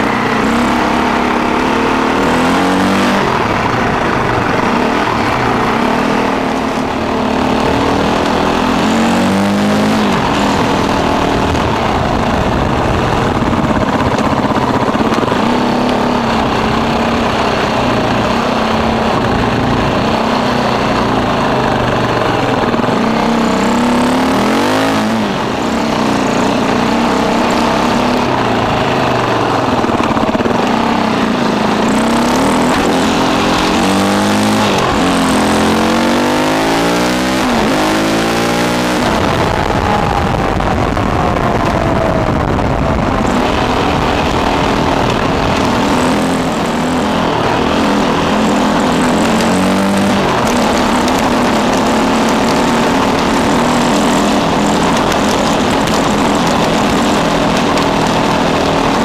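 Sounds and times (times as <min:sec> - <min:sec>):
dirt bike engine revving: 0:00.0 - 0:59.0
wind noise: 0:00.0 - 0:59.0.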